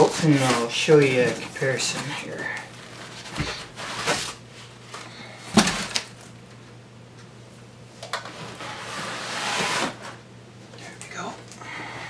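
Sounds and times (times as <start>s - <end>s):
foam rubbing against cardboard: 8.6s - 10.1s.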